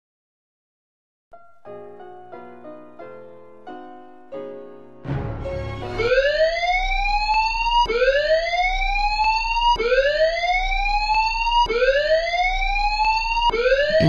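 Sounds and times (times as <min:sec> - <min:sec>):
electronic whooping alarm: 0:11.6 - 0:14.0.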